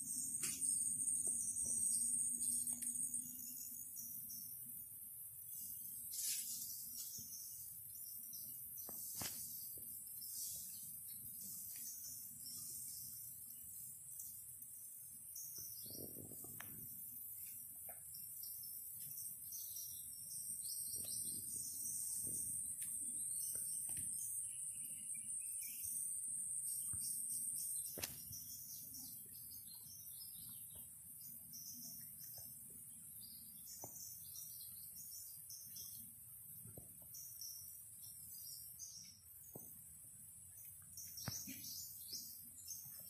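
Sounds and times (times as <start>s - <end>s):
bird chirps: 0.0s - 4.8s, 15.3s - 36.1s, 40.4s - 43.0s
insects droning: 0.0s - 43.0s.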